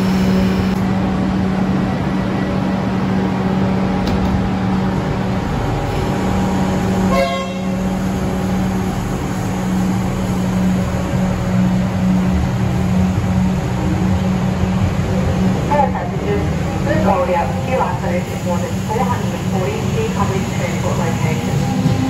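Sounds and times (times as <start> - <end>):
electric train rumbling: 0.0 - 22.0
short train horn tone: 7.1 - 7.9.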